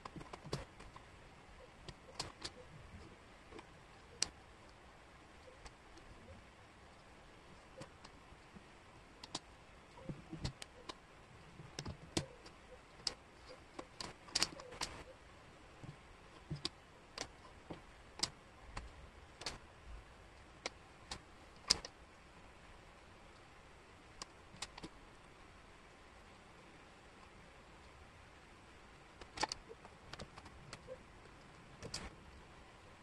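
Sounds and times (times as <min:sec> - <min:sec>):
wooden puzzle pieces clicking: 0:11.7 - 0:15.0, 0:16.4 - 0:17.4, 0:18.2 - 0:19.6, 0:24.2 - 0:25.0, 0:29.2 - 0:30.8.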